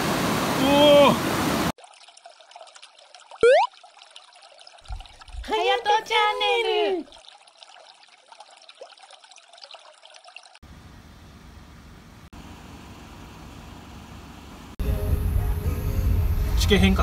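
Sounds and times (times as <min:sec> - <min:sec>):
water trickling: 0:01.7 - 0:10.6.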